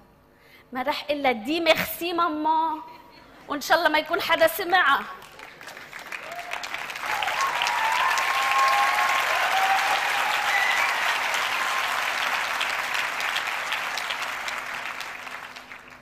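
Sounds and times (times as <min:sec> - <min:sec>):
audience applauding: 0:05.1 - 0:16.0.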